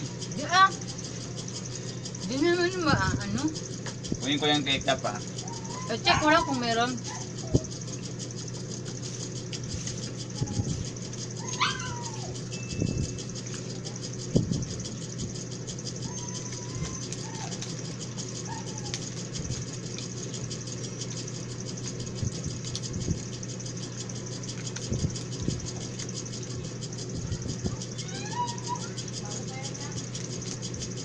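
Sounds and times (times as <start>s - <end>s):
background hum: 0.0s - 31.0s.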